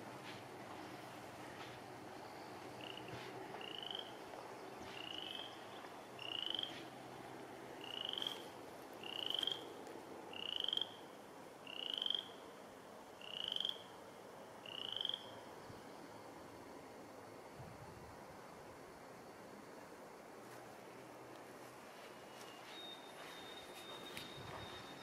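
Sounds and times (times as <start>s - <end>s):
frog calling with rising trills: 2.8s - 4.2s, 6.2s - 6.8s, 7.8s - 8.4s, 9.0s - 9.7s, 10.3s - 11.0s, 11.6s - 12.4s, 13.2s - 13.9s, 14.6s - 15.4s.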